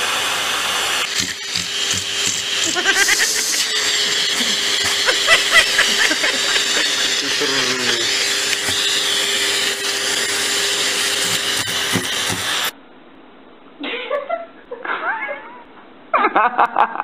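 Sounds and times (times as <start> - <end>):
vacuum cleaner running: 0.0 - 12.8.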